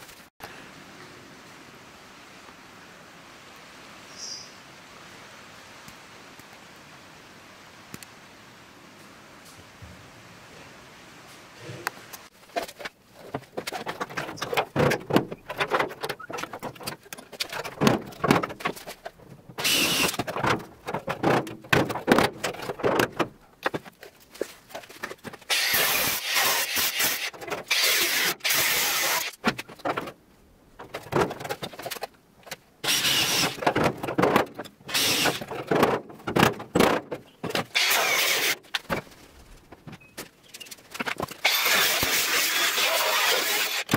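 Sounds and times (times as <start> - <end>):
metal knocks and clatter: 12.5 - 25.5, 33.6 - 37.8
angle grinder cutting sheet steel: 25.5 - 29.4, 37.7 - 38.6, 41.4 - 43.9.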